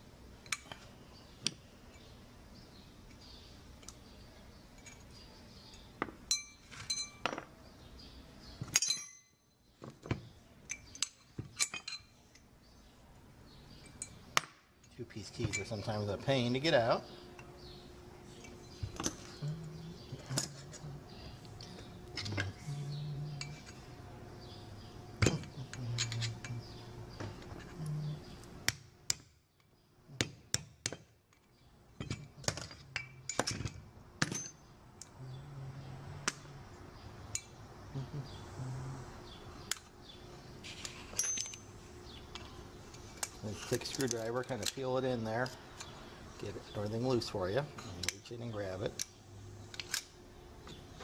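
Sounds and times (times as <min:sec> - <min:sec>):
faint steady hum: 0:00.0 - 0:51.0
metal tools clicking and scraping: 0:00.4 - 0:02.1, 0:04.7 - 0:07.5, 0:08.6 - 0:12.5, 0:13.7 - 0:17.5, 0:18.2 - 0:22.7, 0:23.3 - 0:24.5, 0:25.2 - 0:28.5, 0:30.9 - 0:35.2, 0:40.6 - 0:46.0, 0:46.8 - 0:50.8.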